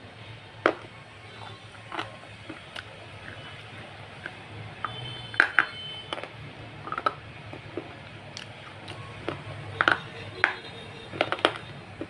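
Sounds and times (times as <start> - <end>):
person biting and chewing food: 0.7 - 12.0
wet mouth smacks and clicks: 1.7 - 5.0, 6.1 - 9.5.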